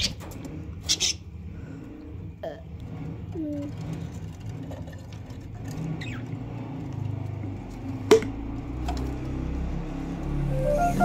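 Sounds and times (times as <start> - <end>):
birds chirping: 0.0 - 1.5, 5.8 - 6.8.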